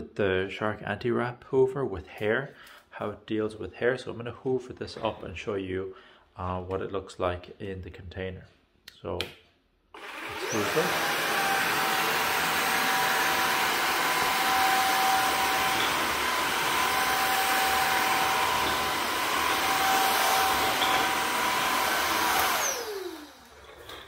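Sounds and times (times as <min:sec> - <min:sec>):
stick vacuum running: 0:10.0 - 0:24.0
vacuum motor winding down: 0:10.0 - 0:24.0.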